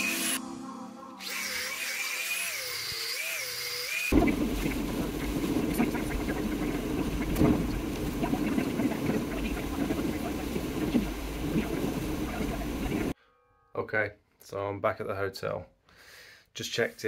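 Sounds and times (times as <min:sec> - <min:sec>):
angle grinder whining: 0:00.0 - 0:00.4, 0:01.1 - 0:04.2
rain hitting windscreen: 0:04.1 - 0:13.1
van engine and road rumble: 0:04.2 - 0:13.1.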